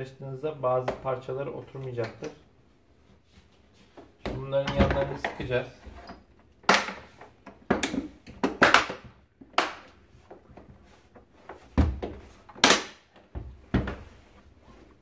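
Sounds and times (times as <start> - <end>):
plastic panels snapping together: 6.6 - 10.0, 12.5 - 13.3.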